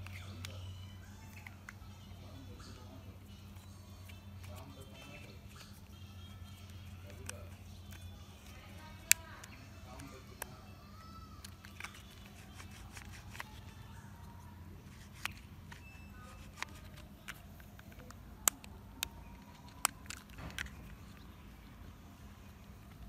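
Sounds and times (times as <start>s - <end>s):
plastic toy parts clicking: 3.5s - 13.8s, 14.8s - 21.2s.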